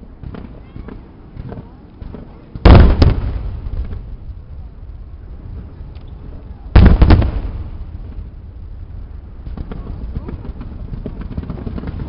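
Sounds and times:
firework bang: 0.2 - 4.7, 6.7 - 12.0
sharp crack: 1.4 - 4.3, 6.8 - 8.4
low rumble: 2.5 - 12.0.

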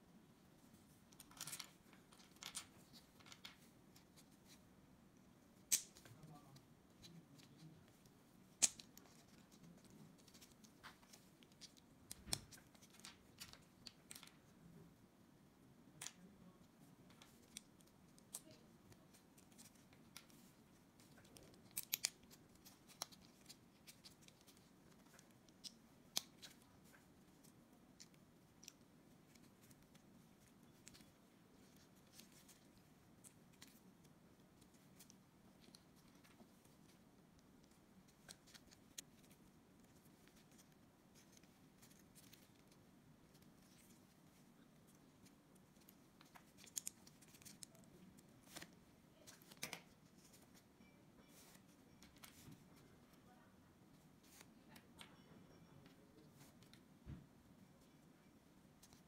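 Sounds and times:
plastic building blocks snapping together: 5.7 - 6.0.

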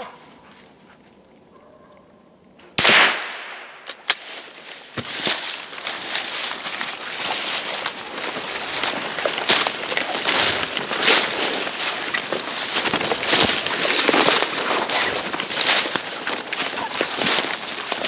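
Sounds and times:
gunshot: 2.8 - 3.8
dry leaves and brush crackling: 2.8 - 18.0.

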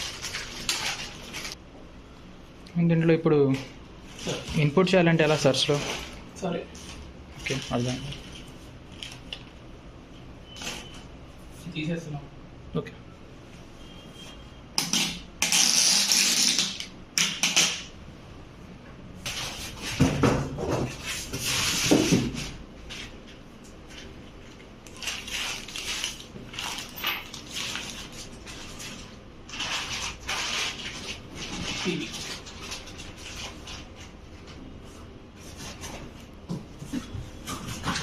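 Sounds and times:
plastic rustling: 0.0 - 1.6, 3.5 - 9.7, 20.8 - 38.0
plastic film peeling off: 24.8 - 33.9.

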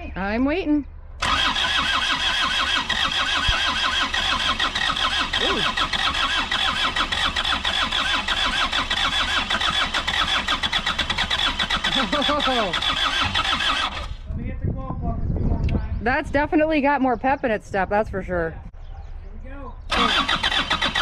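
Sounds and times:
diesel engine cranking: 1.2 - 14.3, 19.9 - 21.0.

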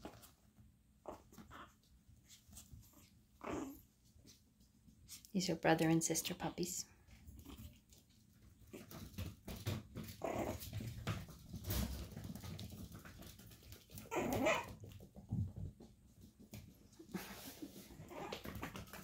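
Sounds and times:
puppies crying: 14.0 - 14.7.

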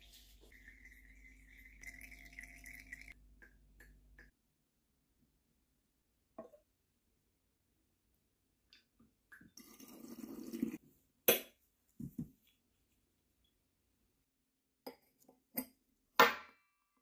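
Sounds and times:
glass clinking: 0.6 - 3.2.

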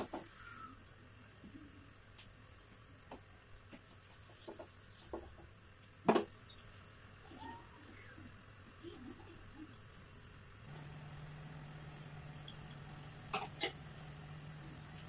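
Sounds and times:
high-pitched whine: 10.7 - 15.0.

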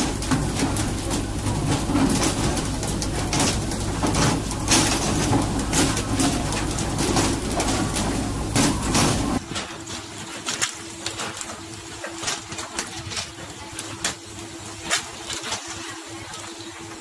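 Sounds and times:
boat engine running: 0.0 - 9.6.

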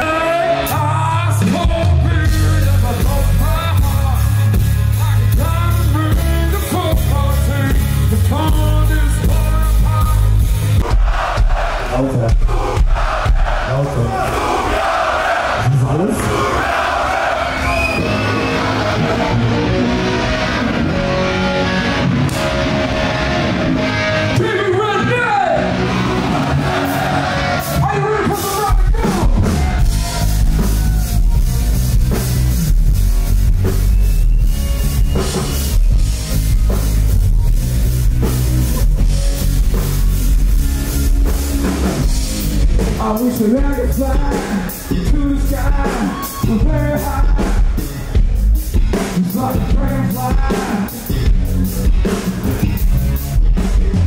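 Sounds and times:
rock band music: 0.0 - 54.0.

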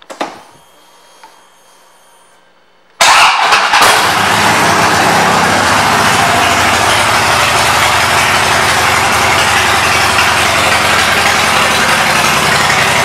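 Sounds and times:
motorcycle engine idling loudly: 3.1 - 13.0.

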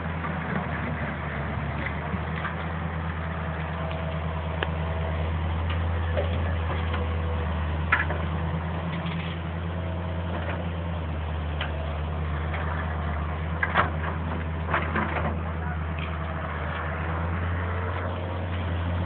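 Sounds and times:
diesel engine humming: 0.0 - 19.0.

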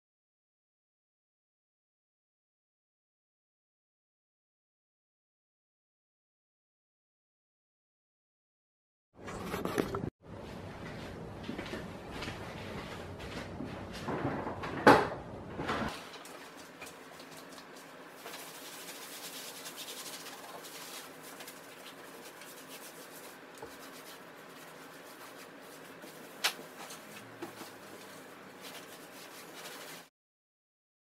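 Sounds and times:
hand-scrubbing scratching: 16.2 - 30.1.

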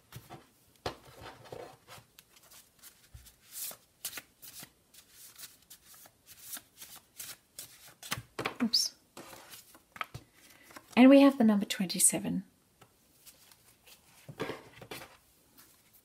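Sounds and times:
paper cards being shuffled: 1.9 - 11.0.

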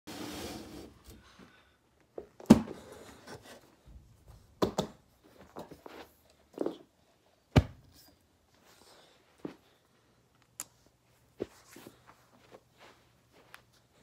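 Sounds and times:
footsteps on carpet: 11.1 - 14.0.

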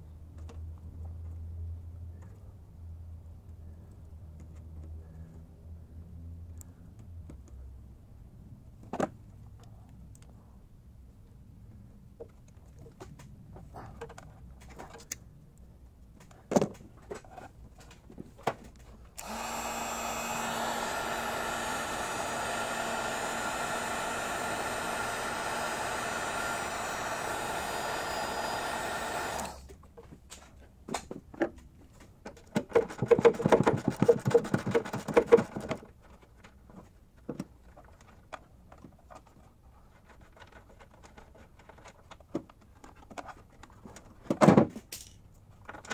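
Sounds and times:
heat gun blowing: 19.2 - 29.7.

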